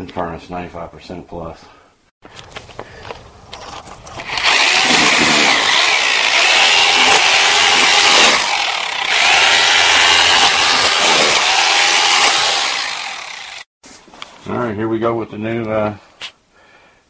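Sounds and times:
power drill boring through brick: 4.0s - 13.7s.

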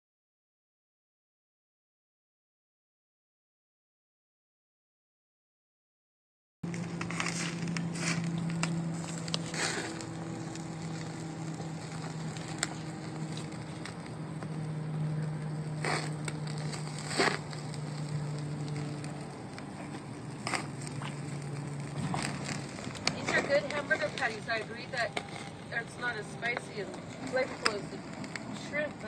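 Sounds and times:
steady low hum: 6.6s - 29.0s
meat sizzling on a grill: 7.0s - 29.0s.

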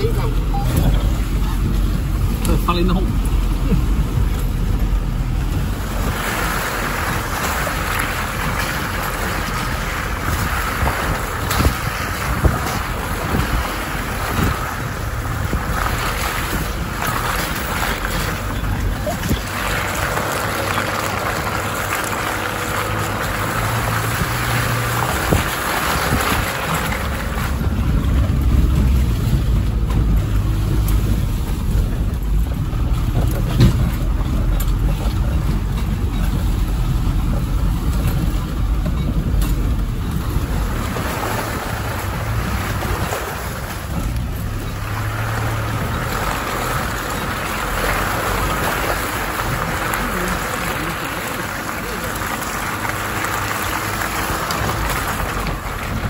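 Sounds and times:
off-road vehicle engine rumble: 0.0s - 56.0s.

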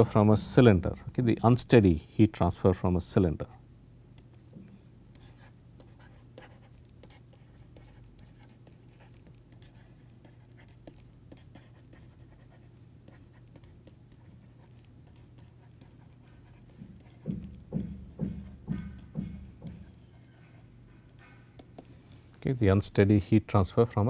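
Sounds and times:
low electrical hum: 0.0s - 24.0s
stylus tapping on tablet screen: 4.1s - 12.1s, 13.0s - 22.3s.

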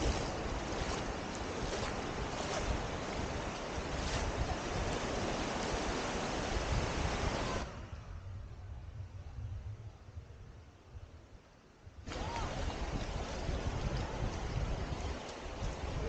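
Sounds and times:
sea surf rushing: 0.0s - 8.1s, 12.1s - 16.0s
wind buffeting microphone: 0.0s - 11.3s, 12.0s - 16.0s.

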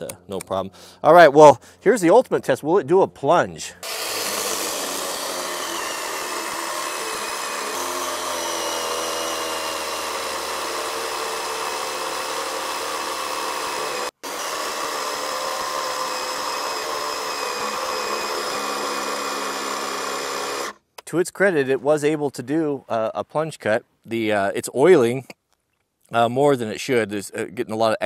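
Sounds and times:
electric chainsaw cutting log: 3.8s - 20.8s.

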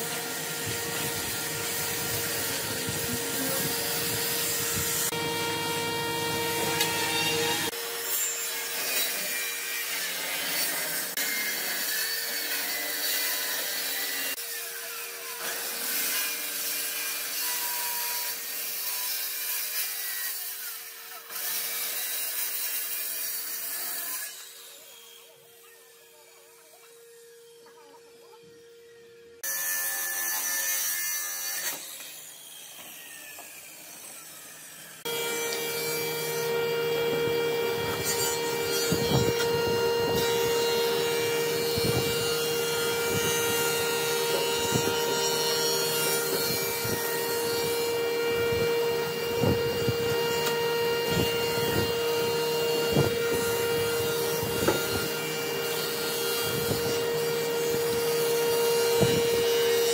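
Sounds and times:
power tool motor whine: 0.0s - 16.2s, 31.2s - 59.9s
workshop noise: 0.0s - 59.9s.

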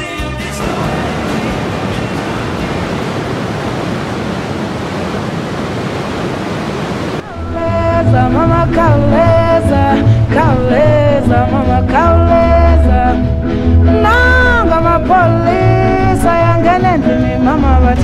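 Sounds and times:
music with singing: 0.0s - 2.9s, 7.2s - 18.0s
waterfall rushing over rocks: 0.6s - 7.3s.

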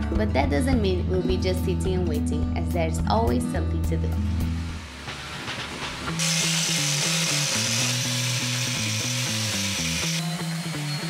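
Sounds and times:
background music: 0.0s - 11.0s
power tool whirring: 6.1s - 11.0s.

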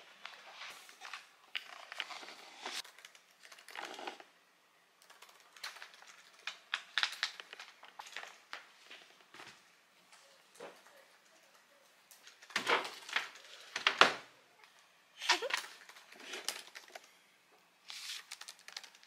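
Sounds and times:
paper book rustling: 0.0s - 4.2s, 17.8s - 19.0s
typing on laptop keyboard: 2.8s - 4.0s, 5.0s - 7.6s, 18.2s - 19.0s.

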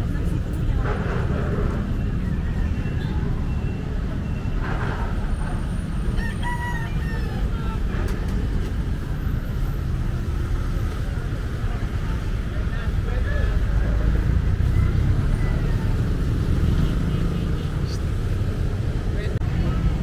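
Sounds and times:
voices: 0.0s - 20.0s
rooster crowing: 6.2s - 7.6s.

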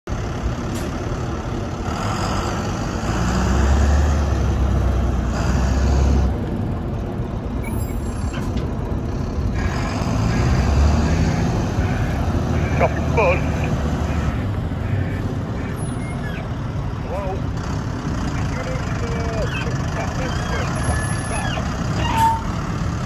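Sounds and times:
dump truck diesel engine: 0.1s - 23.0s.

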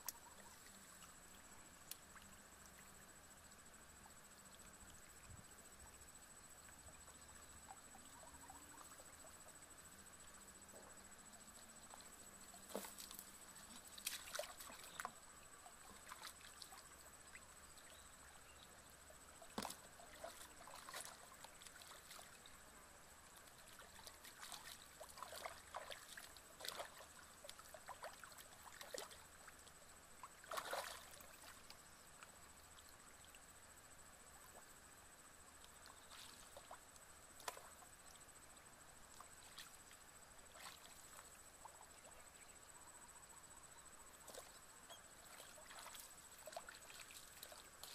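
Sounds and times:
splashing in shallow water: 10.2s - 31.9s, 35.6s - 42.3s, 43.9s - 47.9s.

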